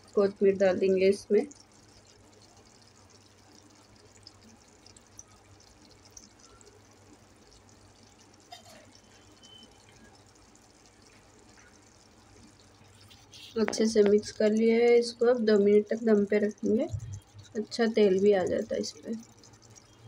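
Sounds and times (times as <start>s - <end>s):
soft small ticks: 1.3s - 20.0s
low hum: 16.6s - 17.6s.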